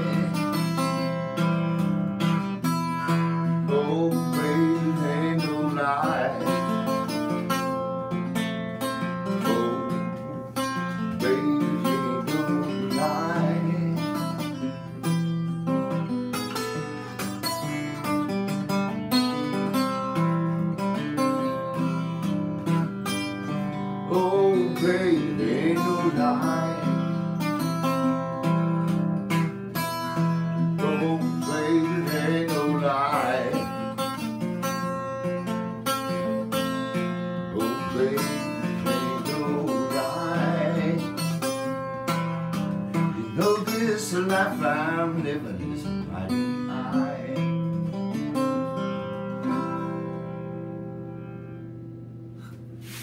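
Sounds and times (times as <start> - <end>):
person singing: 0.0 - 1.1, 3.5 - 7.2, 9.3 - 15.0, 24.1 - 27.4, 30.8 - 34.0, 37.5 - 41.5, 43.1 - 47.7
acoustic guitar picking: 0.0 - 53.0.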